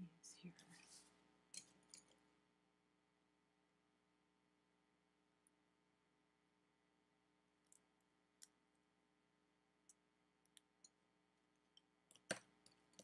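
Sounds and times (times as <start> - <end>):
wooden pencils clicking: 11.7 - 13.0.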